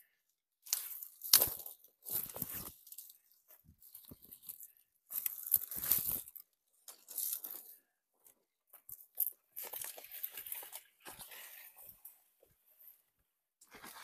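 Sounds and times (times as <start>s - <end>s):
branches rustling and crackling: 0.6s - 7.9s, 8.9s - 12.1s.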